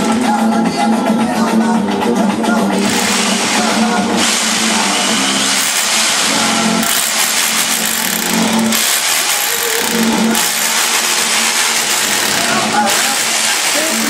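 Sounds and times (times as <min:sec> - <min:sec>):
rotary hammer drill boring into wall: 0:02.8 - 0:03.6, 0:04.2 - 0:14.0.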